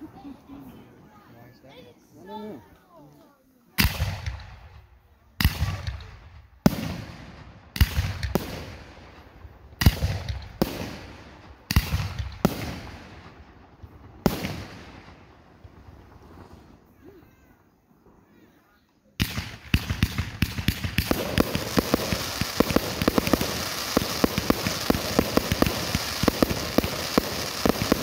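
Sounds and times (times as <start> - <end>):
firework shells booming: 5.4 - 16.8, 19.2 - 28.0.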